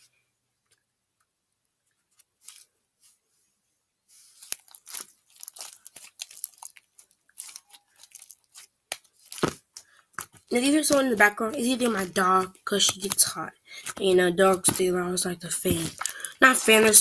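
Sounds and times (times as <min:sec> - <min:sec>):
slime crackling and popping: 0:04.4 - 0:17.0.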